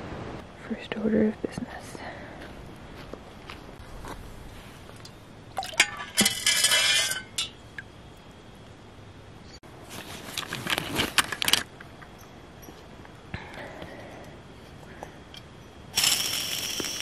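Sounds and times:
water rushing into metal pot: 5.6 - 7.5.

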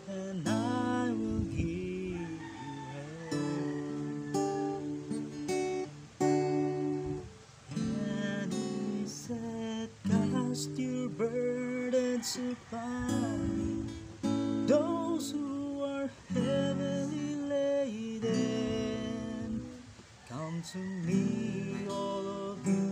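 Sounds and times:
man singing: 0.0 - 5.2, 7.7 - 22.9
acoustic guitar strumming: 0.0 - 22.9.

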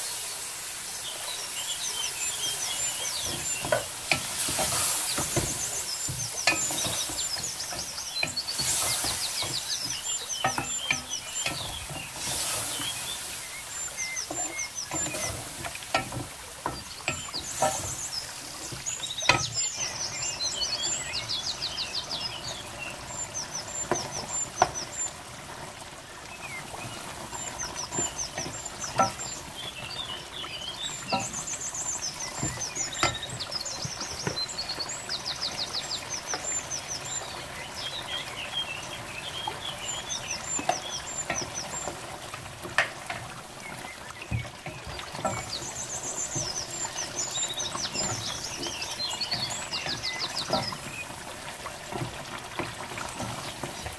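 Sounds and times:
birds chirping: 0.0 - 53.9
simmering pot hissing: 0.0 - 53.9
wooden spoon stirring in pot: 2.4 - 21.1, 26.5 - 34.6, 40.4 - 53.9
spoon knocking against pot: 3.2 - 12.9, 14.3 - 18.0.

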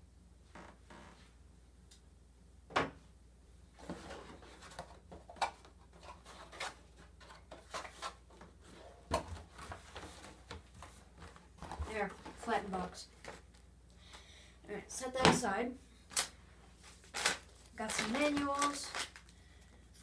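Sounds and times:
cardboard crackling and creaking: 16.9 - 19.3.

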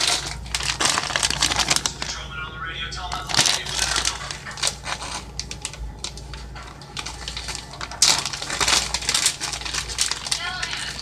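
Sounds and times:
plastic package crinkling: 0.0 - 2.3, 3.0 - 11.0.

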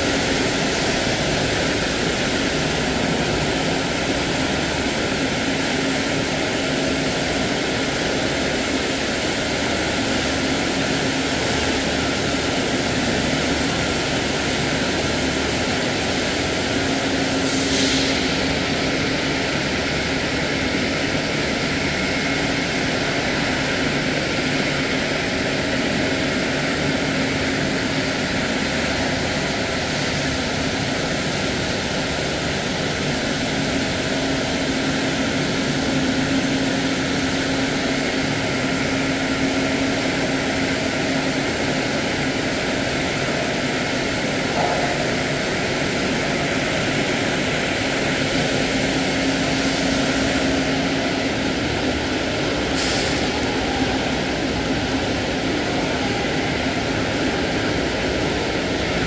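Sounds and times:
machinery droning: 44.3 - 59.0.

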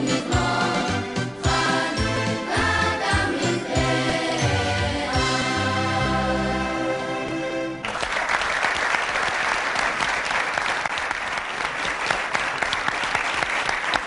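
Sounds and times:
boys' choir holding chord: 0.0 - 7.3
audience applauding: 7.8 - 14.0.

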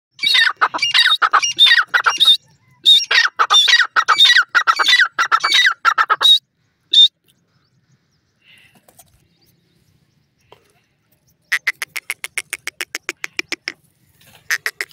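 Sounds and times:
francolin calling: 0.2 - 7.2.

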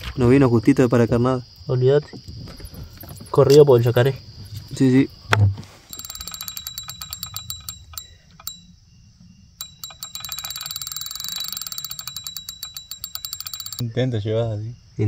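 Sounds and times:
bite alarm ticking: 0.4 - 1.3, 5.9 - 8.9, 9.6 - 13.9.

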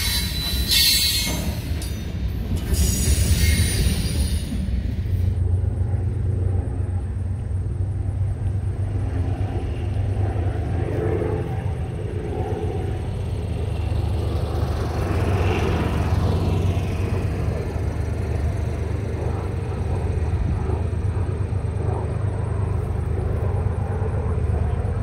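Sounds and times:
train cars rolling on rails: 0.0 - 10.7
steady low rumble: 1.7 - 25.0.

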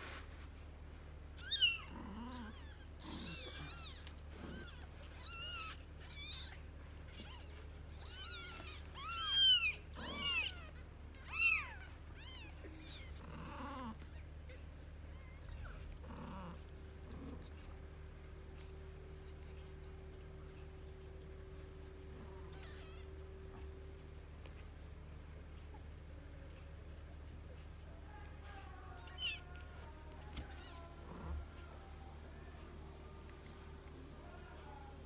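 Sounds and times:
kittens mewing: 1.4 - 17.8, 28.1 - 31.8.

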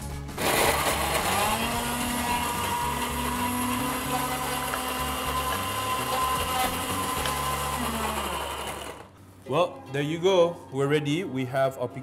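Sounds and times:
blender motor running: 0.4 - 9.2.

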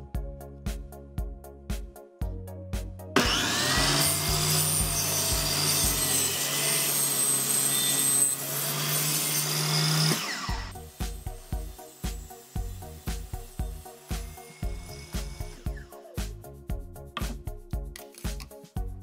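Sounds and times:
background music with a beat: 0.0 - 5.0, 10.8 - 19.0
table saw cutting panel: 3.2 - 16.3.

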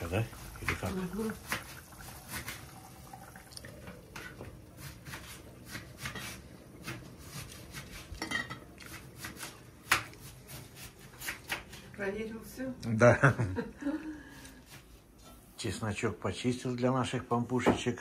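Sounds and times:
sauce simmering with soft pops: 0.0 - 7.2
pot lids clinking: 8.2 - 8.6.

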